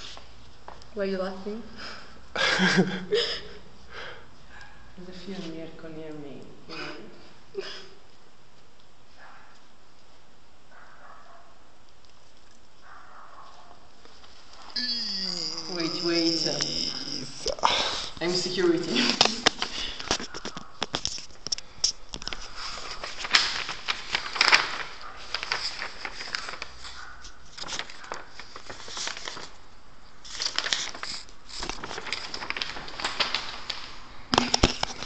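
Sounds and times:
rustling and crinkling: 0:08.0 - 0:14.8, 0:15.7 - 0:35.0.

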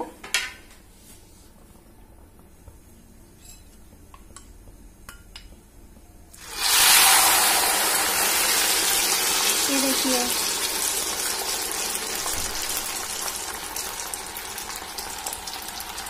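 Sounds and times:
batter sizzling in hot oil: 0:06.4 - 0:16.0.

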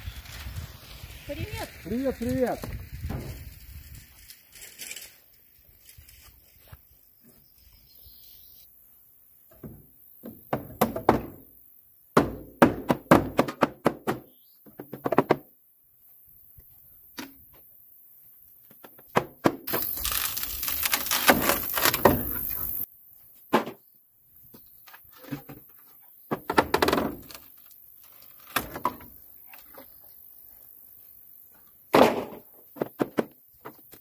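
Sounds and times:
wooden thunks and cracks: 0:18.8 - 0:22.6.

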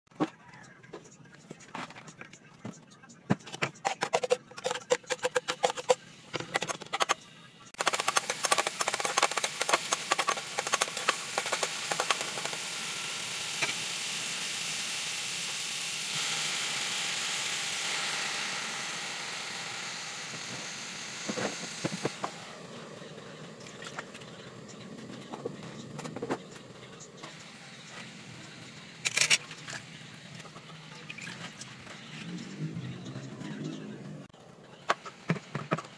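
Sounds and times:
garlic sizzling in hot oil: 0:07.8 - 0:19.3.

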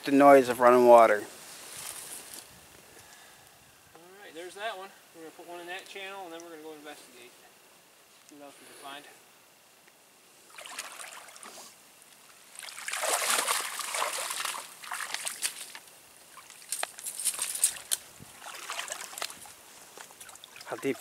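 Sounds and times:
water sloshing and splashing: 0:10.5 - 0:11.6, 0:12.4 - 0:21.0.

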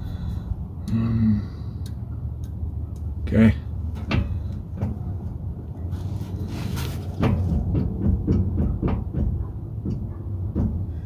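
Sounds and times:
differential clunking: 0:03.8 - 0:05.5, 0:06.4 - 0:11.0.

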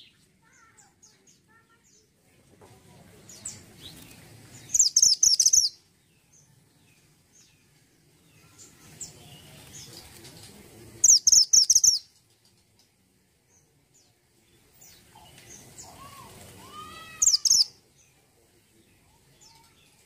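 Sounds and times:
faint bird chirps: 0:03.3 - 0:20.0
bird singing high notes: 0:17.2 - 0:17.7.

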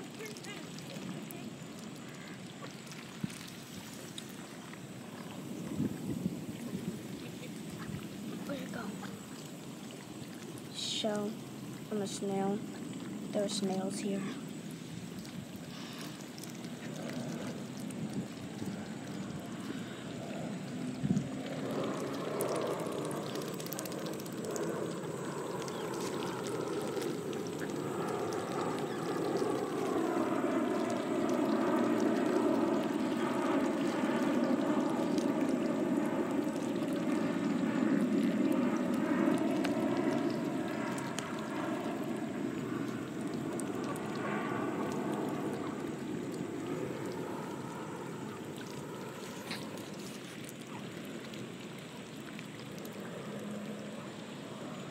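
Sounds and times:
ducks splashing in water: 0:00.0 - 0:10.6, 0:15.0 - 0:47.6.

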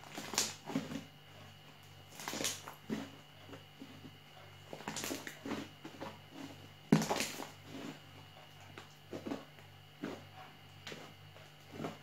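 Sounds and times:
slime squelching and popping: 0:00.0 - 0:00.9, 0:02.1 - 0:03.2, 0:04.7 - 0:06.1, 0:06.9 - 0:07.6.

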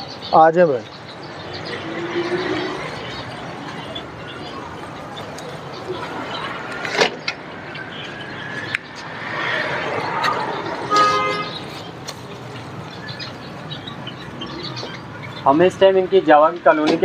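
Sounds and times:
background traffic: 0:00.0 - 0:17.0
car horn: 0:10.8 - 0:11.6.

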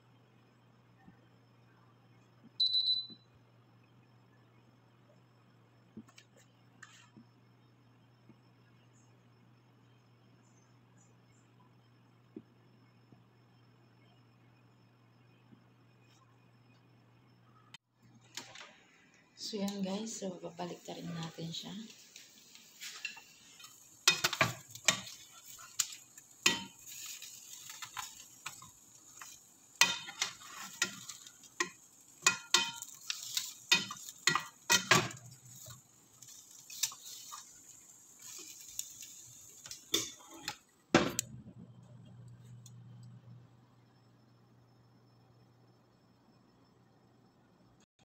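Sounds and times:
steady low hum: 0:18.8 - 0:47.9
metal tongs clinking on baking dish: 0:22.8 - 0:37.4.

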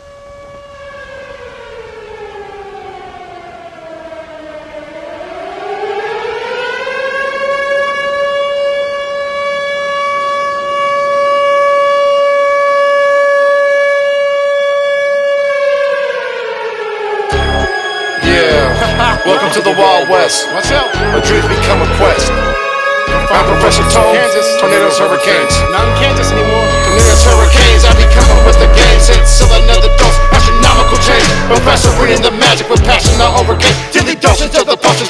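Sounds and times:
civil defense siren wailing: 0:00.0 - 0:34.8.

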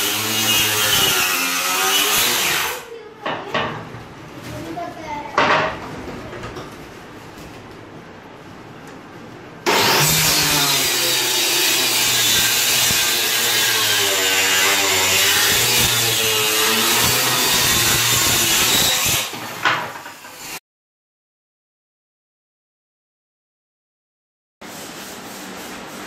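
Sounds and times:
power saw cutting plywood: 0:00.0 - 0:02.9, 0:09.7 - 0:20.6.

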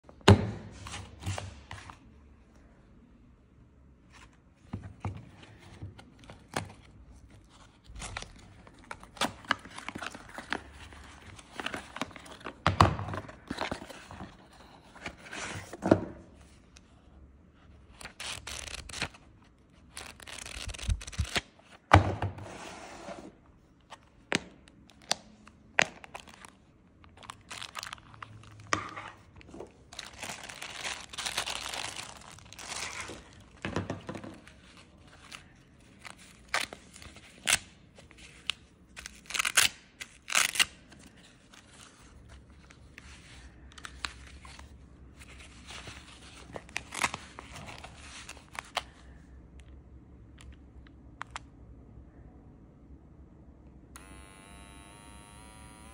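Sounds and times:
packaging rustling and crinkling: 0:25.8 - 0:38.5.

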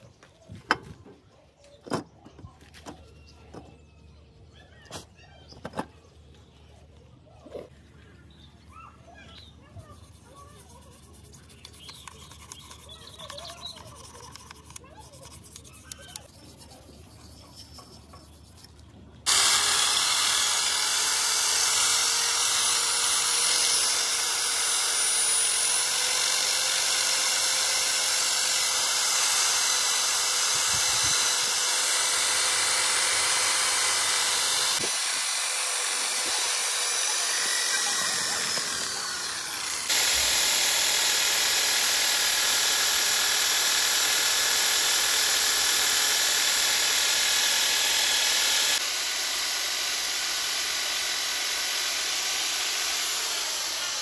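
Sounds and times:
workshop tool hissing: 0:19.3 - 0:54.0.

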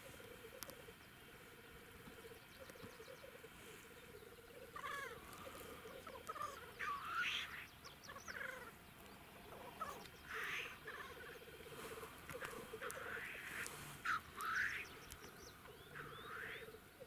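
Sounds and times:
grouse bubbling coo: 0:00.0 - 0:17.0
grouse hissing sneeze calls: 0:04.8 - 0:08.8, 0:09.5 - 0:15.0, 0:15.9 - 0:16.7.

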